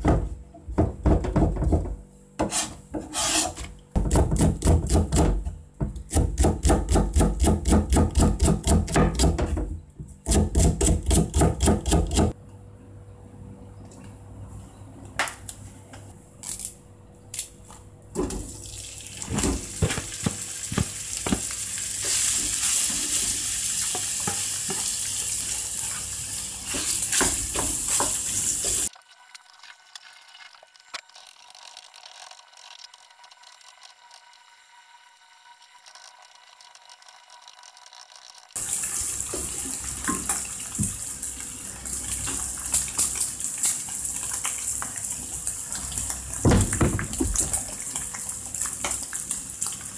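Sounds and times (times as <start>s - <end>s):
wooden spatula scraping pan: 2.4s - 3.7s
meat sizzling in oil: 19.7s - 28.9s.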